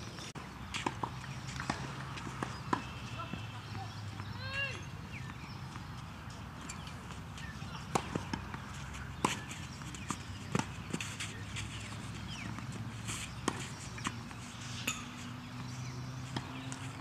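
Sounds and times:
birds chirping: 0.0 - 17.0
tennis ball struck by racquets: 7.8 - 11.4, 13.3 - 17.0.

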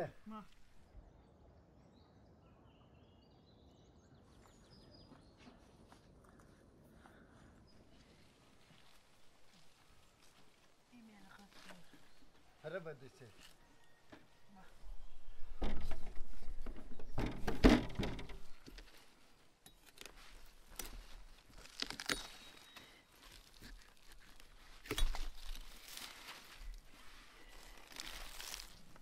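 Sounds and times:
dry leaves and vines rustling: 7.9 - 29.0.

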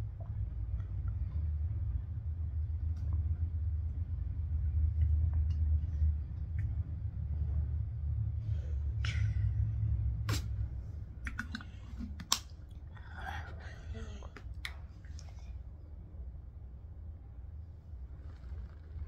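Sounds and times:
low rumble: 0.0 - 19.0
child drinking from plastic bottle: 11.3 - 12.5.

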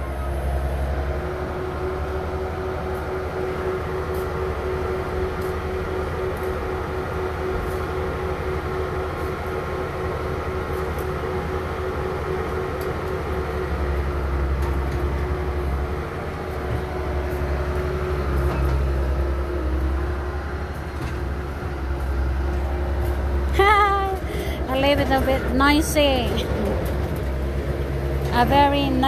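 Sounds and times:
diesel truck engine droning: 0.0 - 29.0.

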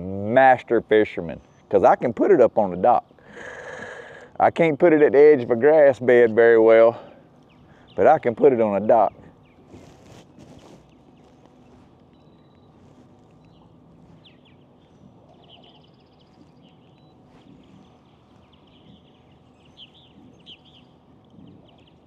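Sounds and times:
faint bird chirps: 10.8 - 22.0.

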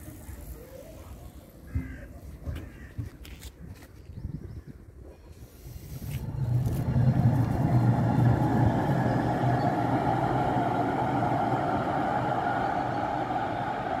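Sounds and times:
tram rumbling past: 5.8 - 14.0.

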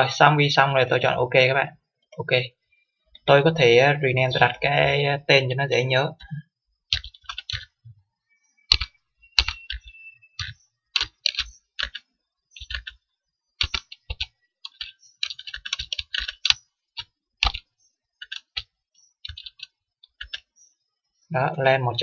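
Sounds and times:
keyboard typing: 6.2 - 7.8, 8.7 - 20.6.

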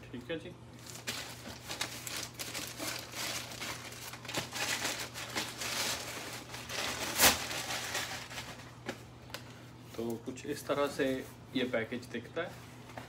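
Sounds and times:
plastic mailer bag crinkling: 0.8 - 8.8.

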